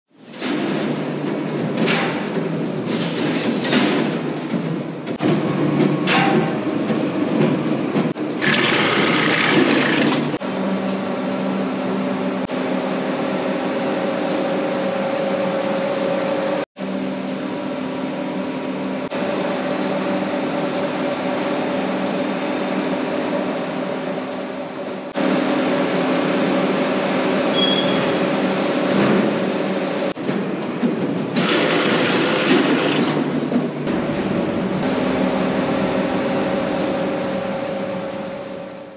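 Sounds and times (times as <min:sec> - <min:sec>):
machinery rattling and clattering: 0:00.4 - 0:10.4, 0:30.1 - 0:38.1.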